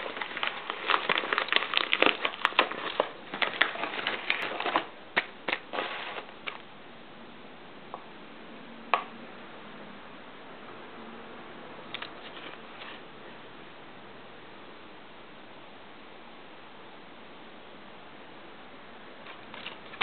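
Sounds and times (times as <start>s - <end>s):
plastic mailer crinkling: 0.0s - 6.6s, 19.2s - 20.0s.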